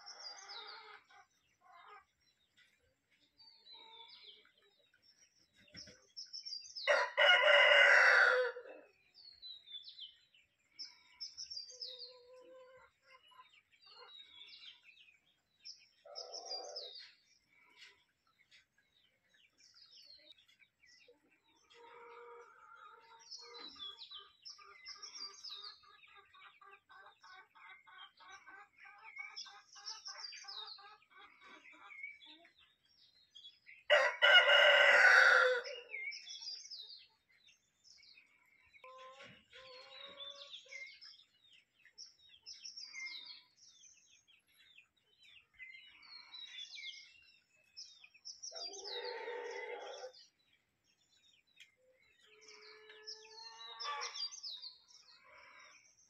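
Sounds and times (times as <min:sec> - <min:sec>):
chickens clucking: 0:00.0 - 0:56.0
rooster crowing: 0:06.9 - 0:08.7, 0:33.9 - 0:35.8.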